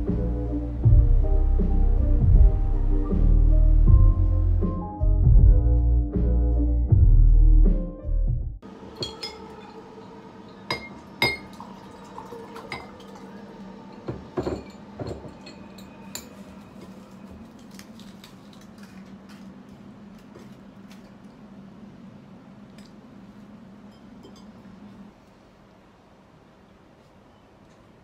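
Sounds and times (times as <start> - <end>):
glass bottle and glass clinking: 9.0 - 9.8, 10.5 - 11.6, 13.9 - 16.4, 23.9 - 24.6.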